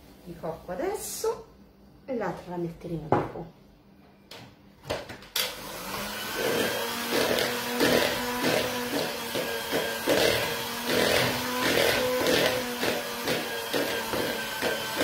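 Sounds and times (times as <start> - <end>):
electric hand mixer running: 5.4 - 15.0.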